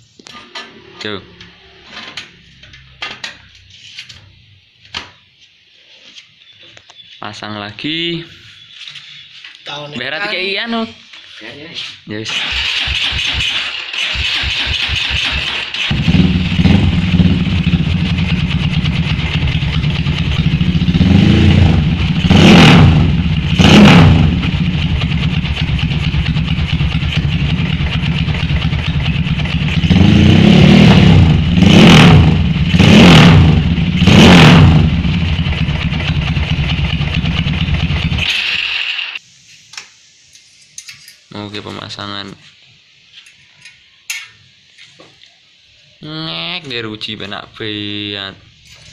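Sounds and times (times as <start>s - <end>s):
motorcycle engine idling and revving: 12.3s - 39.2s.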